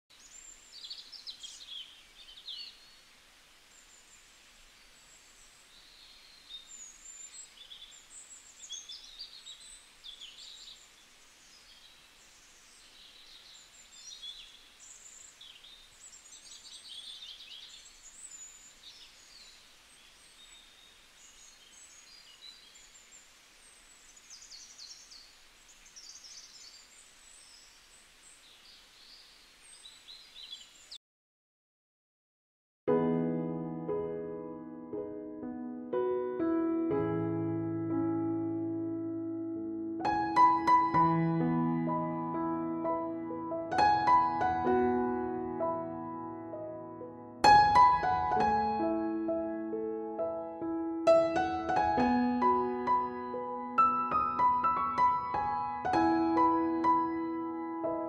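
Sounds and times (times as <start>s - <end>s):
birds chirping and trilling: 0.1s - 31.0s
faint steady hiss: 0.1s - 31.0s, 32.9s - 58.0s.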